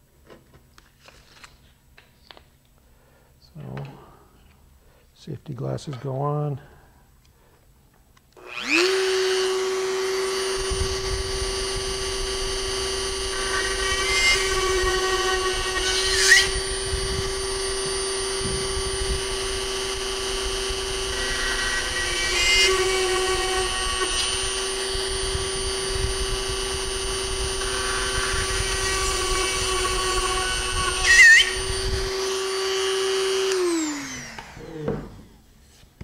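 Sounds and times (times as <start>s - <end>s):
drill bit squealing: 8.4s - 34.7s
electric drill running: 8.4s - 35.4s.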